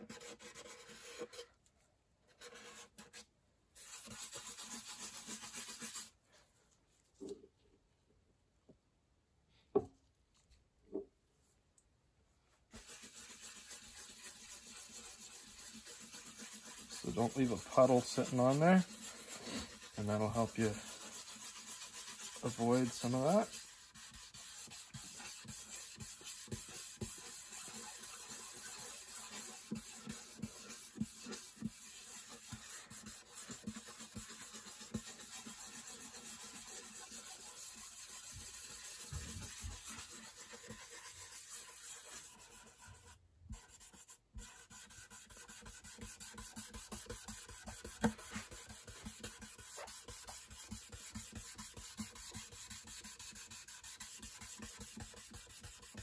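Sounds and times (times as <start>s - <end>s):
cloth rubbing on wood: 12.8s - 43.0s.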